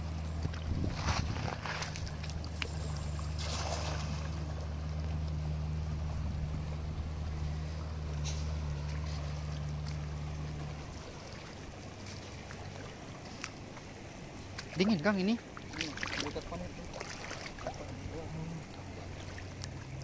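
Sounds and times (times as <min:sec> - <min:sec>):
low steady hum: 0:00.0 - 0:20.0
stream rushing: 0:00.0 - 0:20.0
net splashing onto water: 0:00.5 - 0:04.6, 0:14.5 - 0:18.1.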